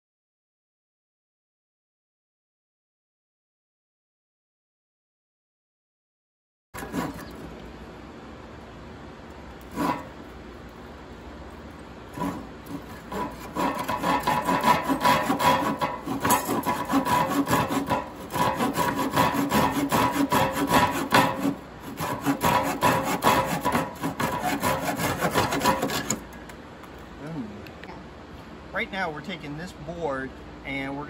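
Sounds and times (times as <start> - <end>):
hand saw cutting wood: 6.8 - 7.5, 9.6 - 10.2, 12.1 - 26.3.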